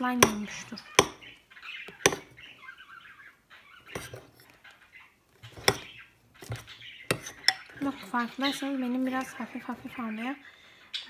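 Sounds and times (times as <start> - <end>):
utensil clicking on bowl: 1.9 - 2.3, 5.5 - 7.8
sticky slime squelching: 5.3 - 10.0.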